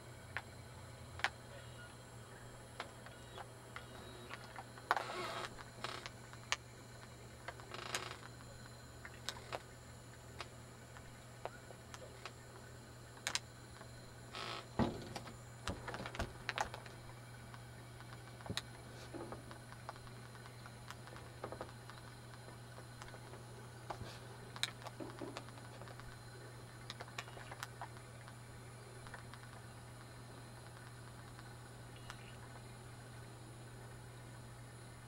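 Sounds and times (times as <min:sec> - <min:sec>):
low electrical hum: 0:00.0 - 0:35.0.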